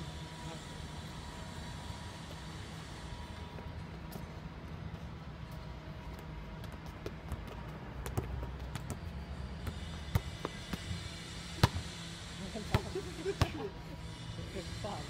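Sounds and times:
balls tapping feet and paving: 3.5s - 11.0s.

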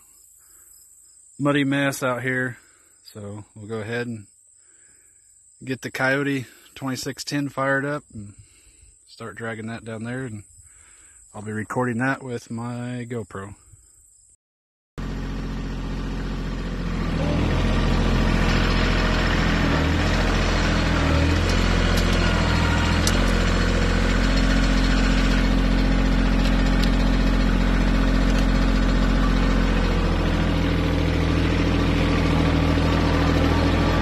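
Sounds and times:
tractor diesel engine running: 15.0s - 34.0s.

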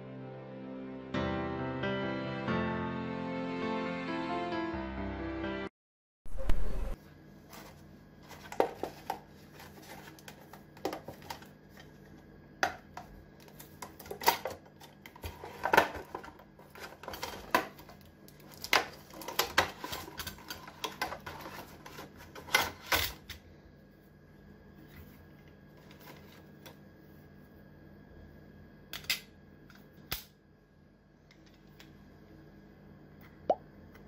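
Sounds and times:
faint steady hum: 6.3s - 34.0s
plastic packaging crinkling: 13.4s - 23.1s.

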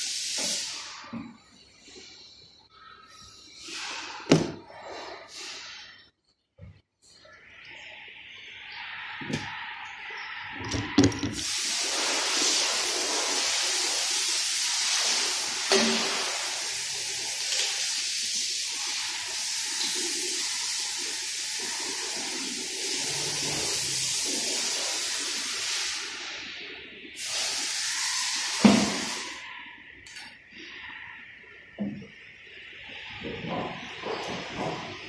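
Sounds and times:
spraying hiss: 0.0s - 1.2s, 11.4s - 29.8s.

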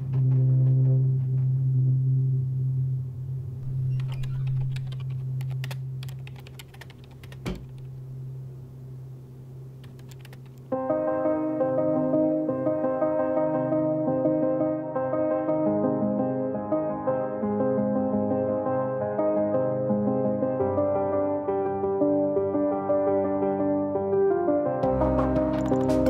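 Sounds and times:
soft piano music: 0.0s - 8.5s, 10.6s - 26.0s
low steady hum: 0.0s - 10.8s
laptop keyboard typing: 3.9s - 7.8s, 9.8s - 10.6s.

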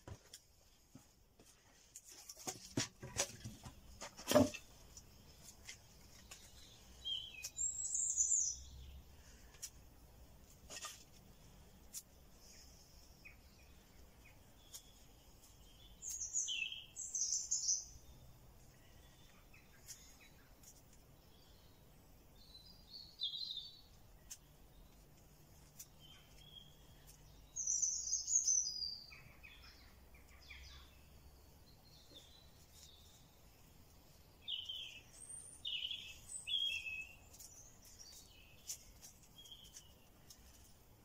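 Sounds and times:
twigs clicking and tapping: 0.0s - 7.7s, 14.2s - 16.4s, 24.2s - 27.3s, 36.1s - 40.8s
songbirds chirping: 0.0s - 41.0s.

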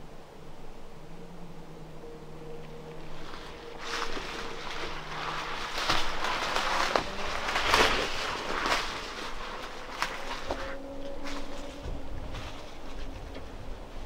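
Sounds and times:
branches brushing and rustling: 0.0s - 14.0s
footsteps through undergrowth: 1.7s - 14.0s
twigs snapping: 2.6s - 13.6s.

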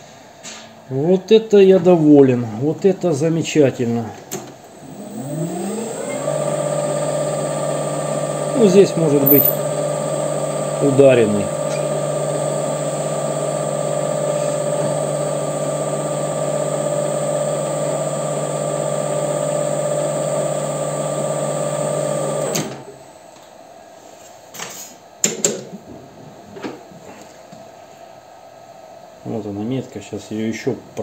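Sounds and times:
lathe motor humming and whining: 4.8s - 22.8s.

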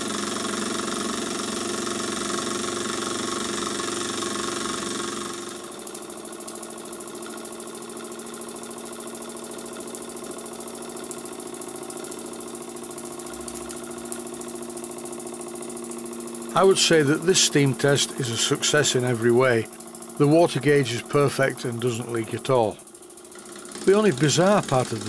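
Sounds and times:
model steam engine beat: 16.5s - 25.0s.

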